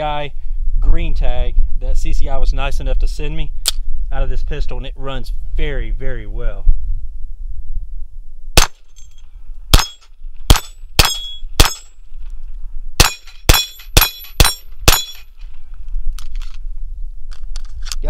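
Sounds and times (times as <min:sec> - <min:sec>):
rapid pistol shots: 0:08.6 - 0:08.9, 0:09.7 - 0:11.9, 0:13.0 - 0:15.2
steel targets pinging: 0:08.6 - 0:12.0, 0:13.0 - 0:15.4.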